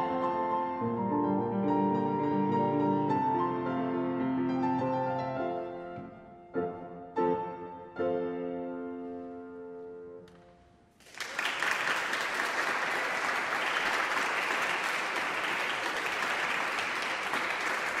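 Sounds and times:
audience applause: 11.0 - 18.0.

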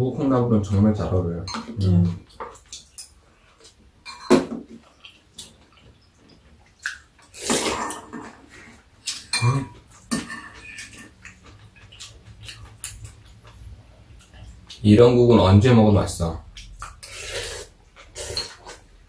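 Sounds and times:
spoons clinking against bowls: 4.0 - 4.4
slurping soup: 17.0 - 18.9.

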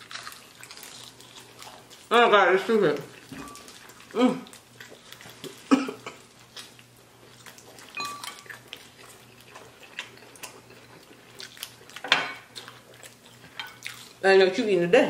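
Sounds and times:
crunching and chewing: 0.0 - 14.2.

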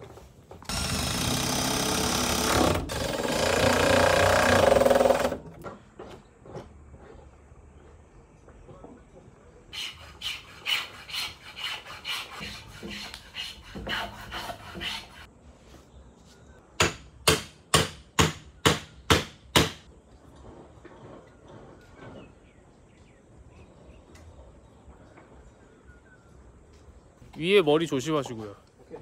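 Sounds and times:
vise rubbing and scraping: 9.8 - 15.3.

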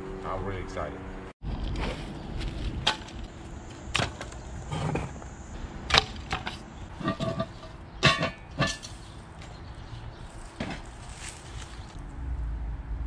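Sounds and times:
cast iron pot clanking: 5.9 - 9.6.

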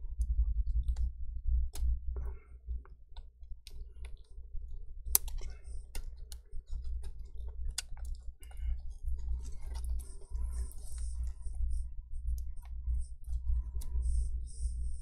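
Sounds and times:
steady low hum: 0.0 - 15.0
small clicks of plastic parts: 5.1 - 8.7.

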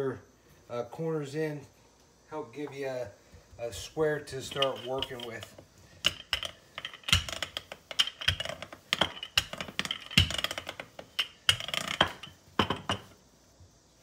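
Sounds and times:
rolling pin knocking on countertop: 6.1 - 13.1.

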